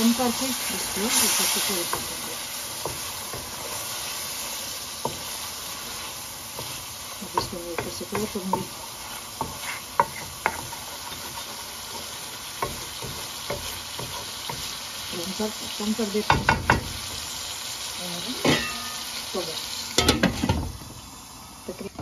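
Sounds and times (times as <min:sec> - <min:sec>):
spatula scraping pan: 0:00.0 - 0:17.3
meat sizzling in a pan: 0:00.0 - 0:22.0.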